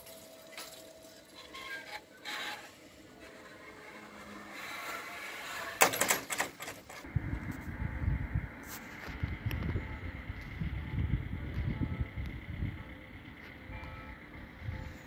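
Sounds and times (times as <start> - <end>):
crossing barrier arm lowering: 1.5 - 7.0
wind on microphone: 7.1 - 12.8.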